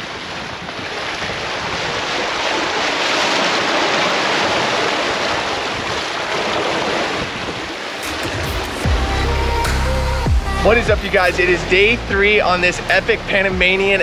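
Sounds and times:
wind buffeting microphone: 0:00.0 - 0:09.0
water rushing along a hull: 0:00.0 - 0:14.0.

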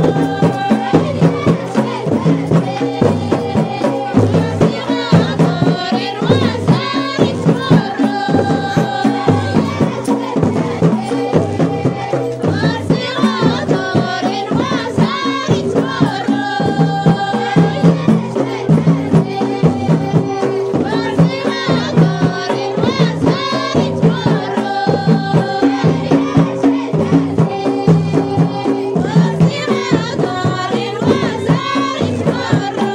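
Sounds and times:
fast drum beat: 0:00.0 - 0:32.9
voices singing: 0:00.0 - 0:32.9.

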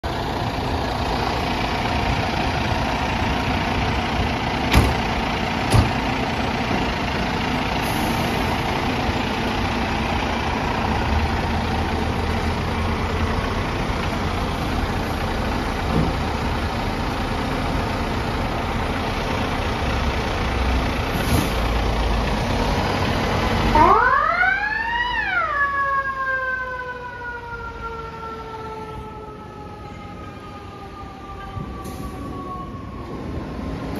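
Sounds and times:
diesel engine idling: 0:00.0 - 0:25.6.

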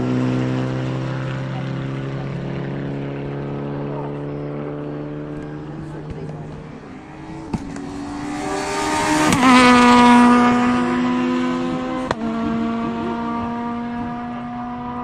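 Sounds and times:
rally car passing at speed: 0:00.0 - 0:15.0.

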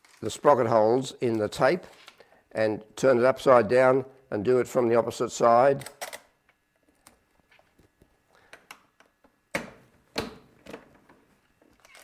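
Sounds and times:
film and tape rustling and clicking: 0:00.0 - 0:00.3, 0:11.6 - 0:12.0.

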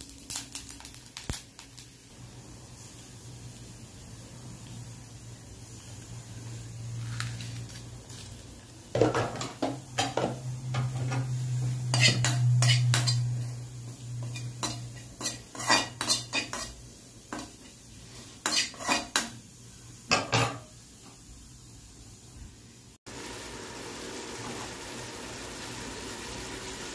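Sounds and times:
spoon scraping iron pan: 0:10.8 - 0:17.6, 0:18.2 - 0:19.3.

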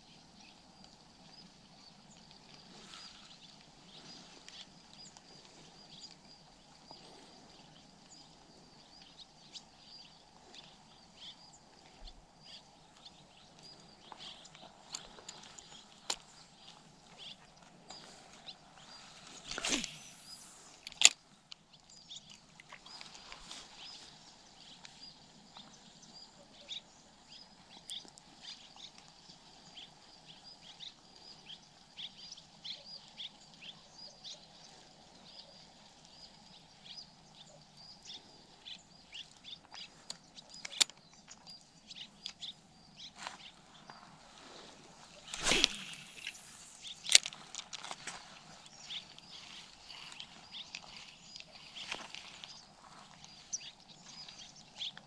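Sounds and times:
small birds chirping: 0:00.0 - 0:55.0
fishing rod swishing: 0:19.2 - 0:20.8, 0:45.2 - 0:47.1.

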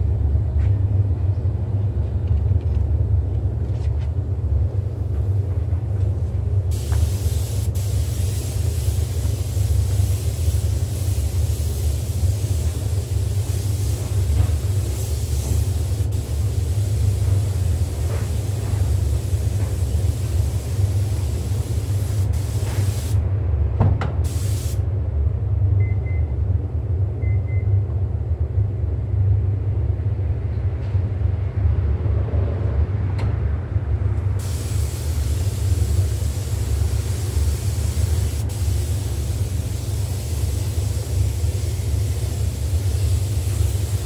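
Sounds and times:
ventilation rumble: 0:00.0 - 0:44.0
high hiss: 0:06.7 - 0:23.2, 0:24.3 - 0:24.8, 0:34.4 - 0:44.0.

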